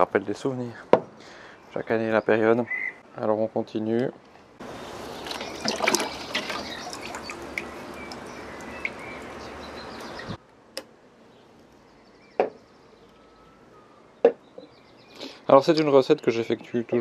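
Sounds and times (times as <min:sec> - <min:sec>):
liquid trickling into bottle: 0:05.1 - 0:09.4.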